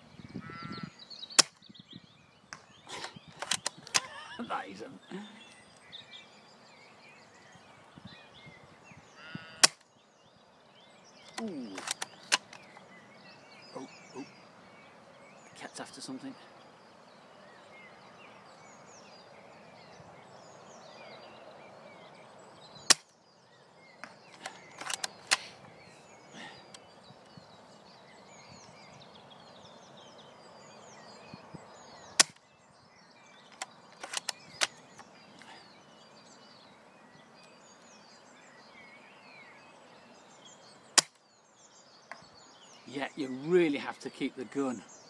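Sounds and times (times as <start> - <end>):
birds chirping: 0.0 - 45.0
airsoft rifle shots: 9.6 - 9.8, 32.2 - 32.4.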